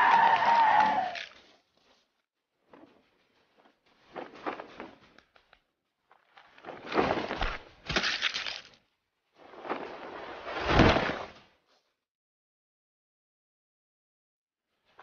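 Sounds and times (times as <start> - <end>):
crashing and smashing: 6.8 - 8.8.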